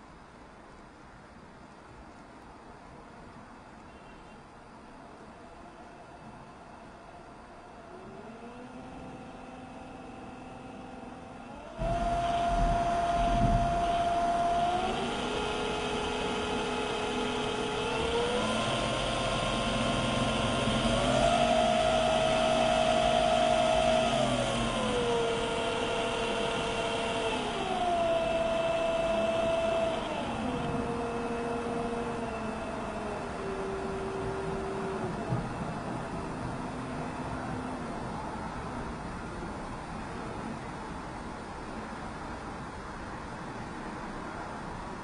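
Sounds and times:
electric motor whining: 5.4s - 38.3s.

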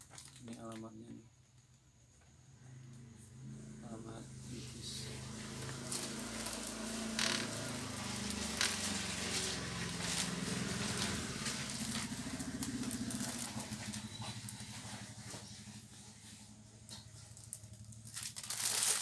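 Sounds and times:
plastic bag rustling: 0.0s - 0.8s, 4.9s - 19.0s
engine humming: 2.7s - 18.7s
paper rustling: 5.3s - 19.0s.

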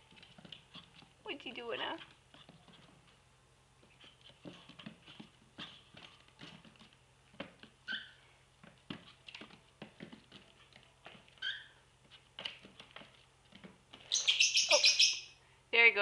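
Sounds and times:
bird chirp: 14.1s - 15.3s.

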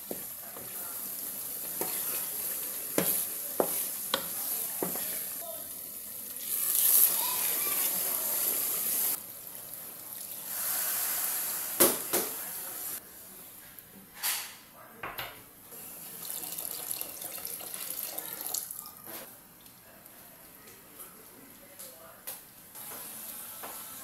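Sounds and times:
water pouring into a pot: 6.2s - 9.2s, 16.0s - 19.0s.

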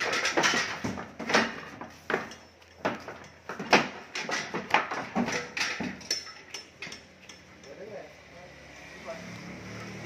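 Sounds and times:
cattle stamping in metal truck: 0.0s - 7.0s.

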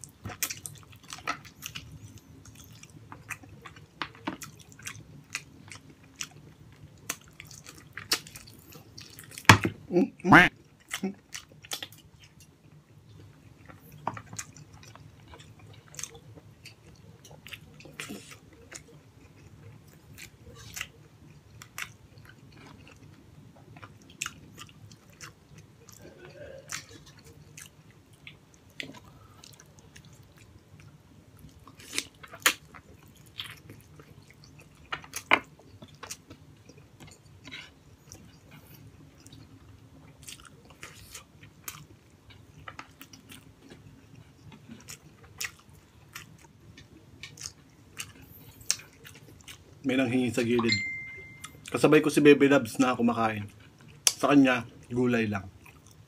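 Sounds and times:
faint steady hum: 0.0s - 56.0s
chewing and wet mouth smacks: 0.2s - 9.5s, 21.6s - 49.8s, 53.5s - 54.9s.

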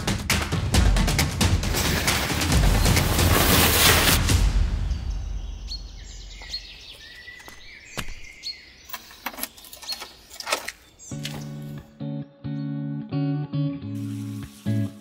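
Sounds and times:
birds chirping: 4.8s - 12.8s
sharp clicks and knocks: 8.9s - 11.5s
plucked guitar music: 11.1s - 15.0s.

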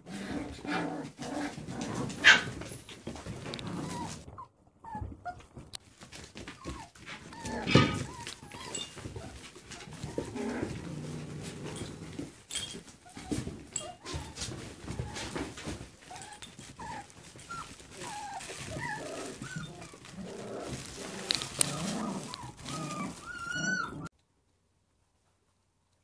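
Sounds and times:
puppies scuffling: 0.0s - 24.1s
puppies whimpering and squeaking: 3.5s - 5.7s, 6.4s - 24.1s.

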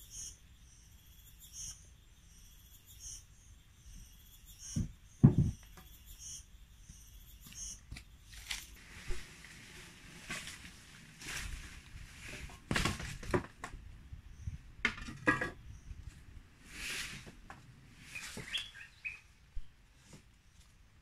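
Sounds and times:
scraping and rustling: 8.3s - 13.8s, 14.9s - 18.8s
wooden poles clattering: 8.4s - 13.9s, 14.8s - 16.2s.

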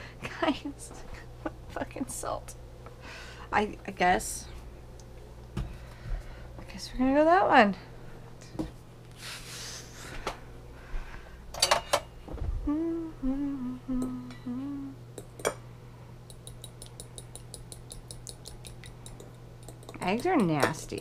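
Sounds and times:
woman humming a tune: 12.5s - 15.1s
fork beating eggs in glass bowl: 16.3s - 21.0s.

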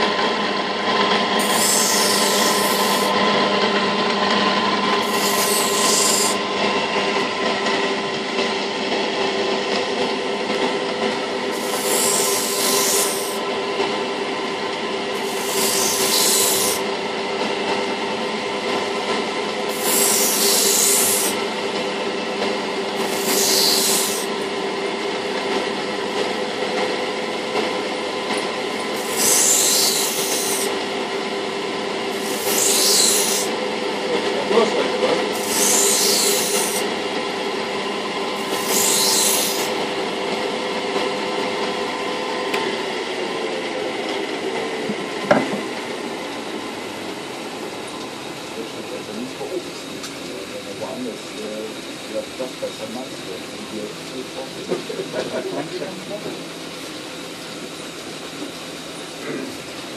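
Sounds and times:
knife grinding on spinning wheel: 0.0s - 10.0s, 10.6s - 14.0s, 15.0s - 17.7s, 19.7s - 24.6s, 28.2s - 30.9s, 32.0s - 33.7s, 34.4s - 37.0s, 37.6s - 40.0s
grinding machinery humming: 0.0s - 59.9s.

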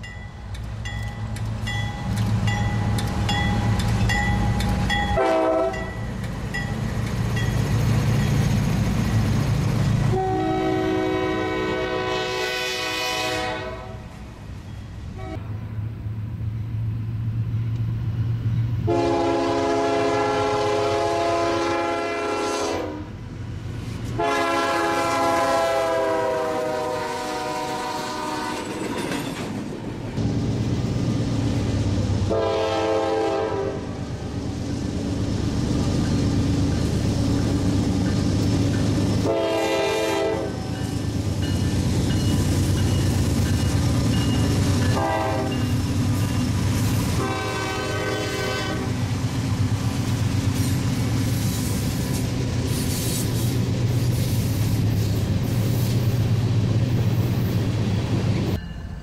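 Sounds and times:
diesel locomotive engines: 0.0s - 59.0s
train horn: 5.1s - 6.0s, 10.1s - 14.1s, 15.1s - 15.6s, 18.8s - 23.2s, 24.1s - 28.7s, 32.3s - 34.0s, 39.2s - 40.8s, 44.9s - 45.7s, 47.0s - 49.0s.

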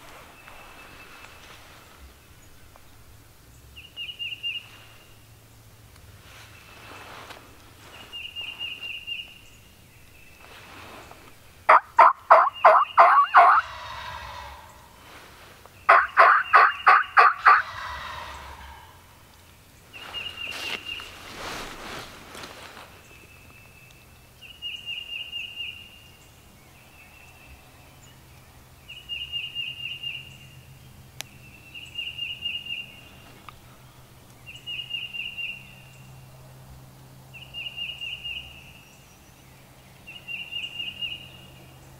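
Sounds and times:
turkey gobbling: 11.7s - 14.7s, 15.9s - 19.0s.

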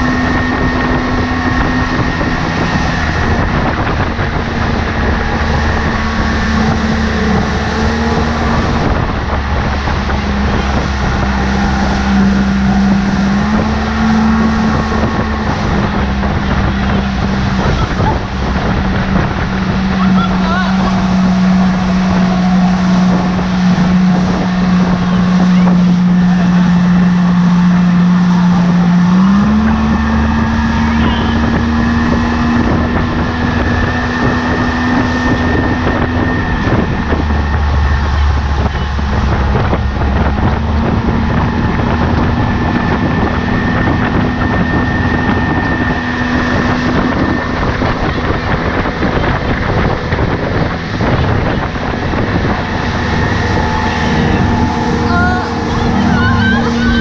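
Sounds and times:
outboard motor running: 0.0s - 57.0s
water rushing: 0.0s - 57.0s
wind on microphone: 0.0s - 57.0s.

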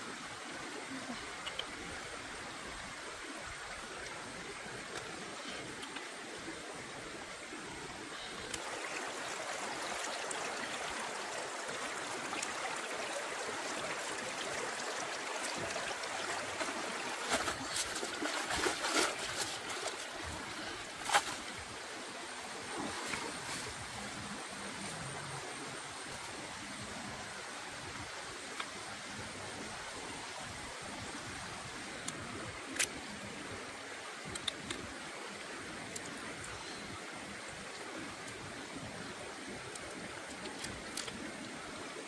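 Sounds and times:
shallow rocky stream running: 0.0s - 42.0s
water splashing through basket: 15.4s - 20.2s.

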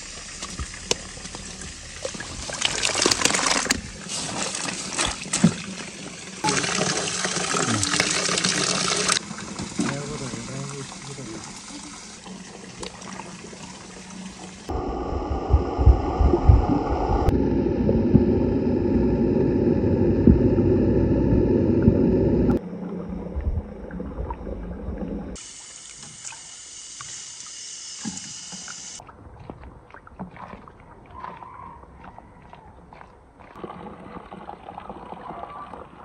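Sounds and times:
water sloshing and splashing: 0.3s - 14.7s, 29.0s - 36.0s
muffled underwater rumble: 14.7s - 25.4s.

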